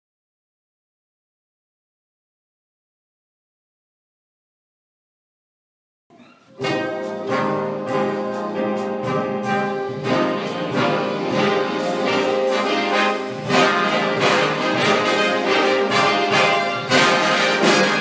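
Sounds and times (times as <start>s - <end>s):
jazz big band playing: 6.4s - 18.0s.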